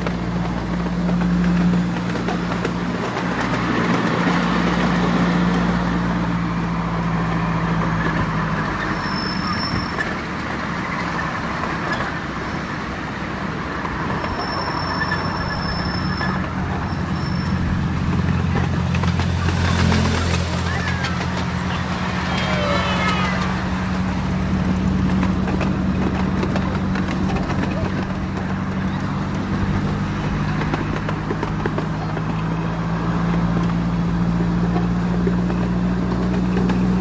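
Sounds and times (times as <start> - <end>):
miniature train running on track: 0.0 - 37.0
thin wheel squeal: 8.0 - 11.3, 14.2 - 18.4, 19.6 - 23.7.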